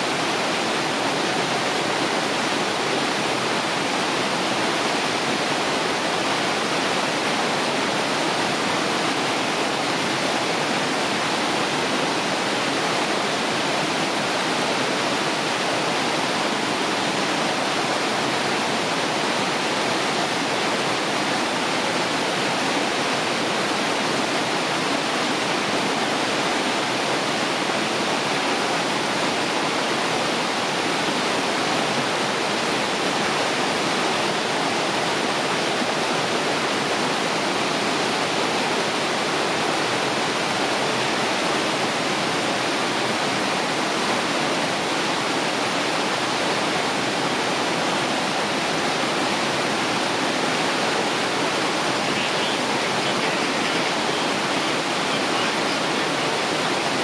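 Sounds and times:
waterfall roaring: 0.0 - 57.0.

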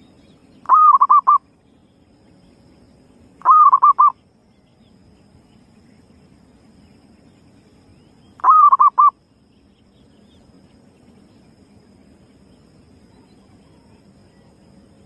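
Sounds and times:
dove cooing: 0.7 - 1.4, 3.4 - 4.2, 8.4 - 9.1.

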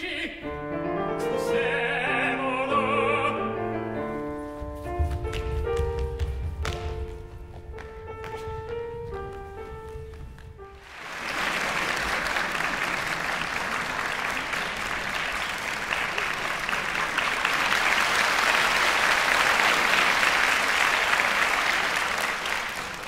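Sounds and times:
audience applauding: 10.8 - 23.0.

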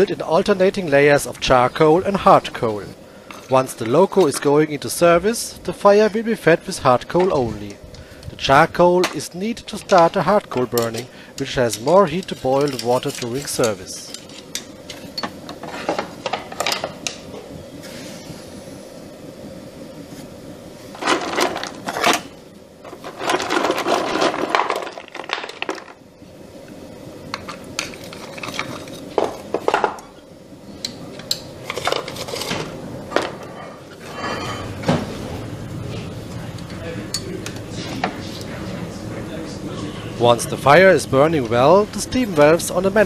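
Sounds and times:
electric blower fan hum: 0.0 - 43.0
metal poker clinking and scraping coal: 9.7 - 16.0, 22.9 - 26.0, 27.4 - 29.2.

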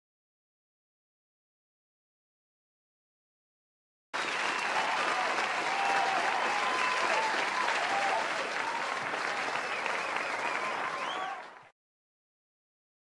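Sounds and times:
cheers and whoops: 4.2 - 11.6
audience clapping: 4.2 - 11.7.

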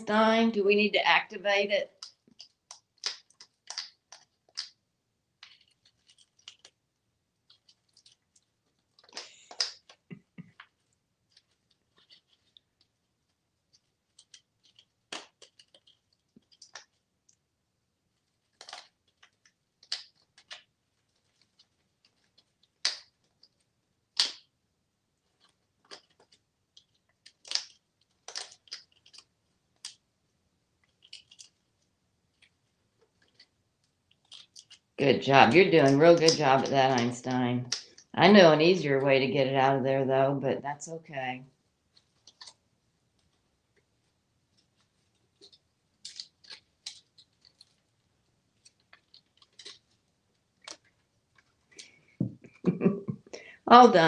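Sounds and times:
parrot beak tearing plastic card: 1.9 - 4.8, 5.4 - 6.8, 7.4 - 12.7, 14.0 - 17.0, 18.4 - 24.5, 25.3 - 30.0, 30.8 - 31.7, 33.2 - 34.9, 42.0 - 42.6, 44.6 - 47.9, 48.6 - 50.0.

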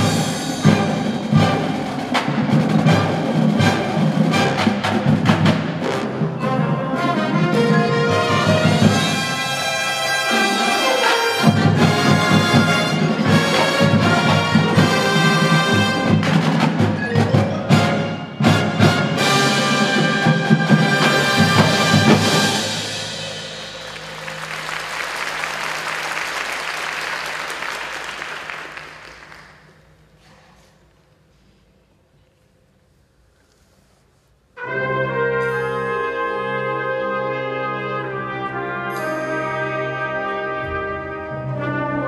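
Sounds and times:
mallet percussion: 0.0 - 26.5, 35.2 - 37.6
marching band playing: 0.0 - 29.7, 34.6 - 42.0
sharp percussion hits: 0.0 - 29.8.

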